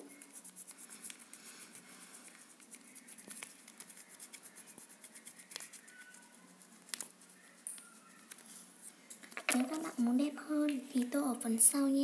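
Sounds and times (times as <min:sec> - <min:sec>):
scratching of colouring on paper: 0:00.1 - 0:08.9.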